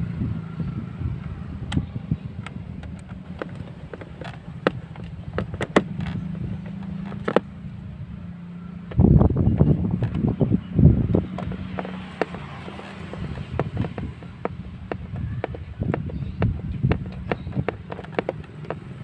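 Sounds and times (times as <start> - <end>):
screwdriver tapping on plastic: 11.1 - 18.9.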